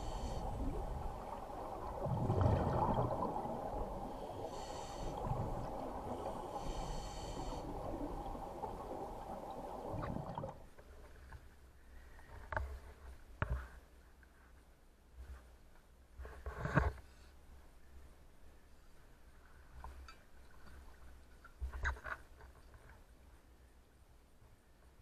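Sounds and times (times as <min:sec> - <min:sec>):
regulator hissing inhalations: 0:00.0 - 0:00.7, 0:04.2 - 0:05.6, 0:06.2 - 0:08.0
bubbles rumbling and gurgling: 0:00.0 - 0:10.8.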